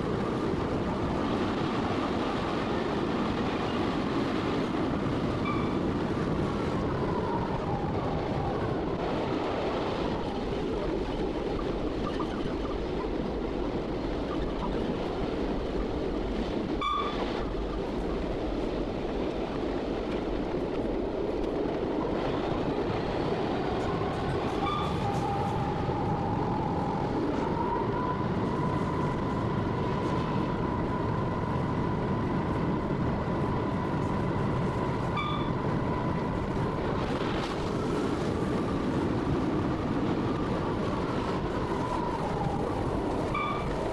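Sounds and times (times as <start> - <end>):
diesel locomotive engine running: 0.0 - 43.9
wheels rumbling on rail: 0.0 - 43.9
short beeps: 5.4 - 5.8, 16.8 - 17.2, 24.6 - 25.2, 35.1 - 35.6, 43.3 - 43.8.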